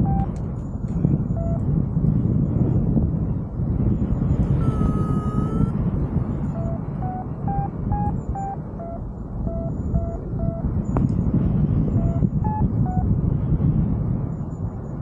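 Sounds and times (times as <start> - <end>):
long high tone: 0.0 - 0.3, 4.4 - 5.8, 6.4 - 10.8
variometer beeps: 0.0 - 1.7, 4.3 - 13.2
wind rushing over microphone: 0.0 - 15.0.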